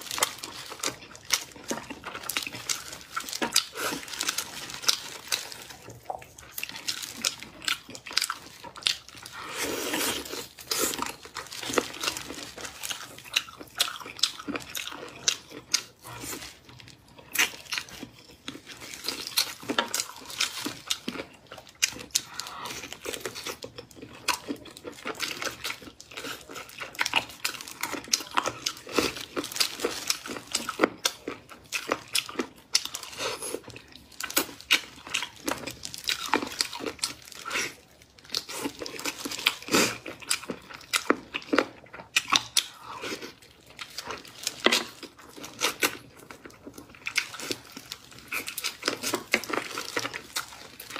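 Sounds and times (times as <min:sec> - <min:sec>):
plastic gloves crinkling: 0:00.0 - 0:13.7, 0:25.0 - 0:31.2, 0:32.9 - 0:39.9.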